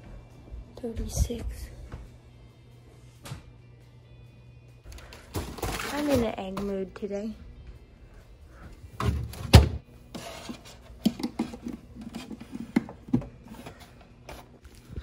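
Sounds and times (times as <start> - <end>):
refrigerator door closing thuds: 9.0 - 9.8.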